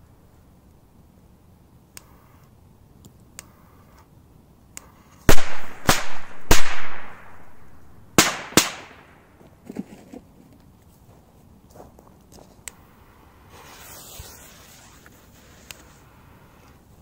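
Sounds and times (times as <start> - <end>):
firecrackers popping: 5.2 - 9.2, 13.4 - 16.9
firecracker bangs with echo: 5.3 - 7.5, 8.2 - 9.1.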